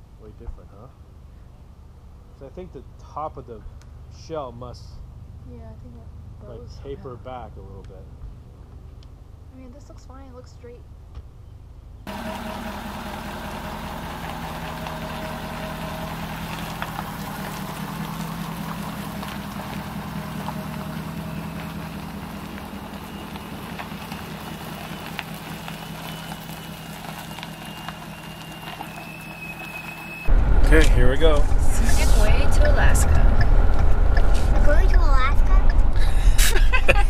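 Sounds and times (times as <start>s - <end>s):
pickup truck engine running: 12.1s - 37.0s.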